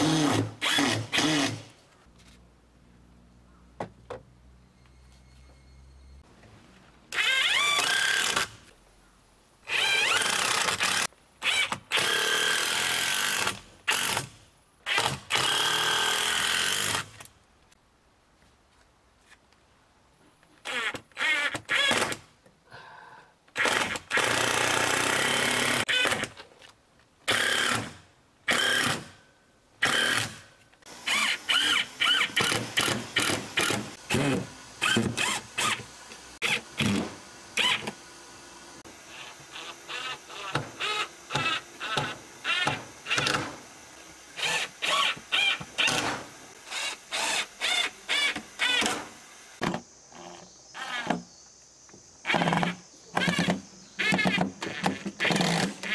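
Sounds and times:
cordless drill driving screws: 0.0s - 1.7s, 7.1s - 8.6s, 9.7s - 14.3s, 14.9s - 17.2s, 20.6s - 22.2s, 23.6s - 26.3s, 27.3s - 29.1s, 29.8s - 38.0s, 38.9s - 49.4s, 52.3s - 55.9s.

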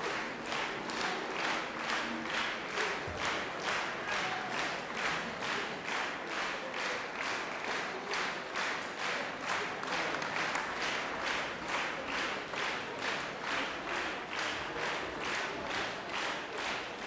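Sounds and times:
audience clapping in rhythm: 0.0s - 17.0s.

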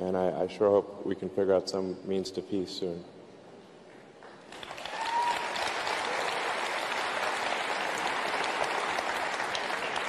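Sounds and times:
audience applauding: 4.5s - 10.0s.

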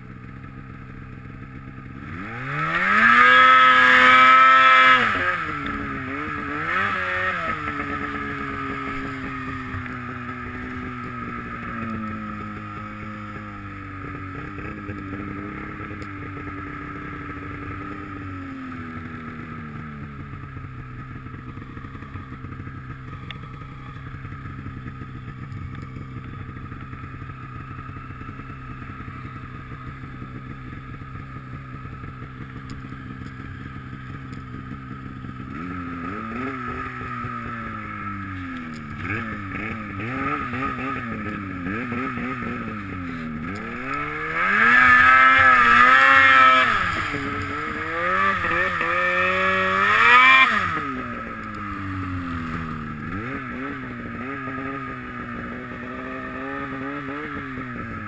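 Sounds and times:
snowmobile engine revving: 1.8s - 25.4s, 26.0s - 58.0s.

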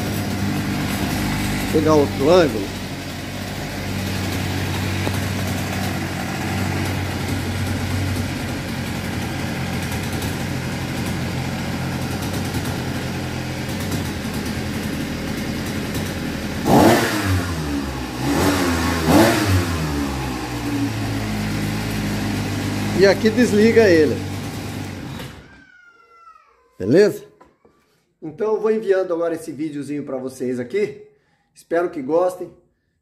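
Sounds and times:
outboard motor running and revving: 0.0s - 25.3s.

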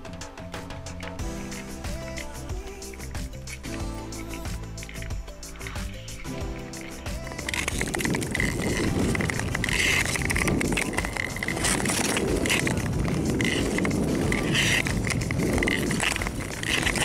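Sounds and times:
ice skates scraping on ice: 7.0s - 17.0s.

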